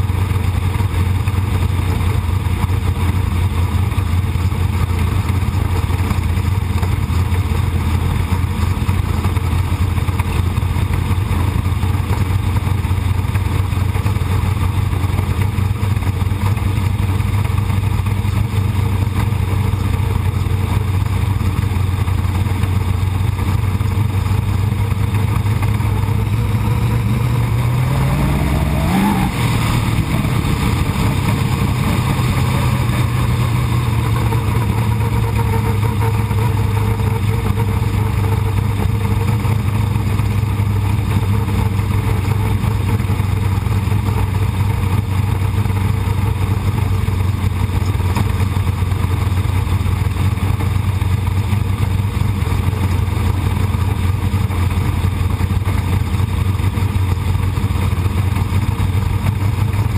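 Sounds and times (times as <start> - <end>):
race car engine revving: 23.3 - 46.9.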